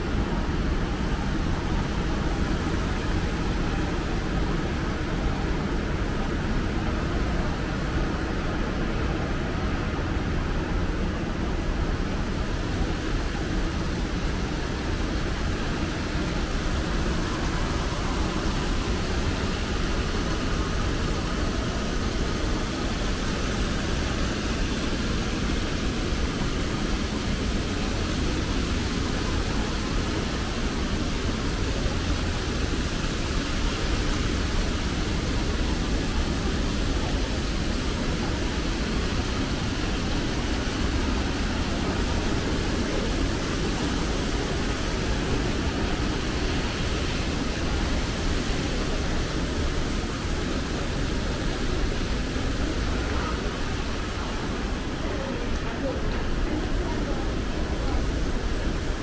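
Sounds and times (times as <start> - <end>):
shopping mall background noise: 0.0 - 59.0.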